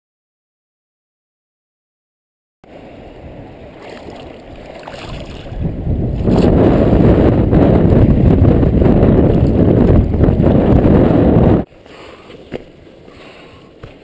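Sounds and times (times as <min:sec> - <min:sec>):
muffled river water rushing: 0:02.7 - 0:07.0.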